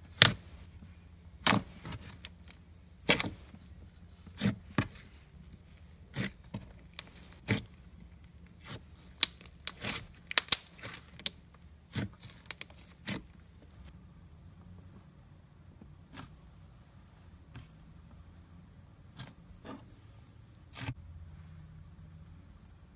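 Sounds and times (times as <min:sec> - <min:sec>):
slime popping and crackling: 0:08.6 - 0:13.2.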